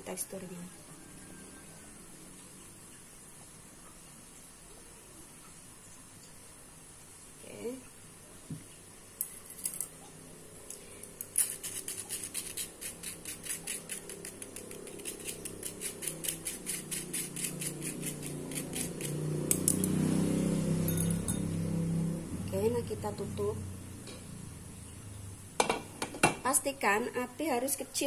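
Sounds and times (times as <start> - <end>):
low hum: 19.4 - 25.6.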